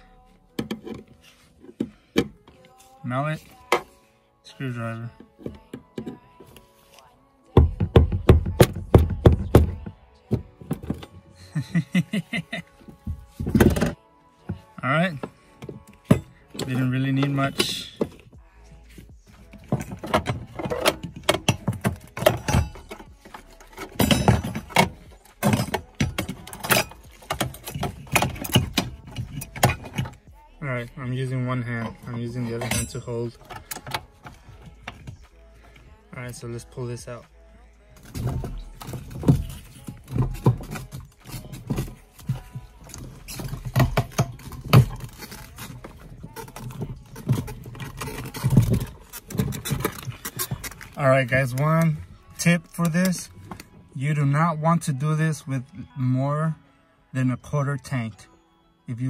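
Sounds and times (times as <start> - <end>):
plastic part knocking and scraping: 38.0 - 51.0.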